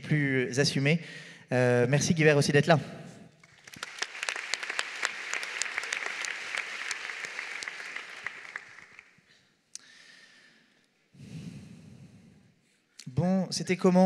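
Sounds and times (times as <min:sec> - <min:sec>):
audience applauding: 0:03.4 - 0:09.3.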